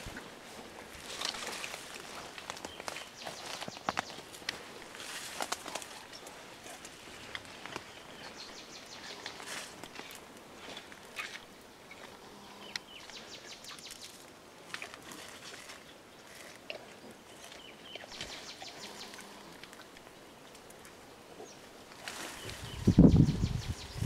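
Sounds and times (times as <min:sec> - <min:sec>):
leafy stems rustling: 0:00.0 - 0:11.4, 0:13.0 - 0:21.0, 0:21.7 - 0:24.0.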